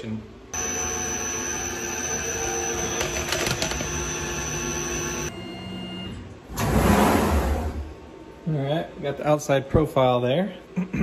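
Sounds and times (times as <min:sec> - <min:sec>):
lathe spindle whine: 0:00.6 - 0:05.3
motor hum: 0:00.6 - 0:08.2.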